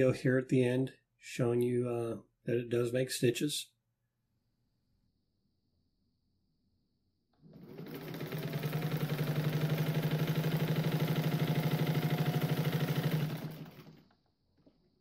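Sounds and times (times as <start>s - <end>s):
sewing machine stitching: 7.4s - 14.3s.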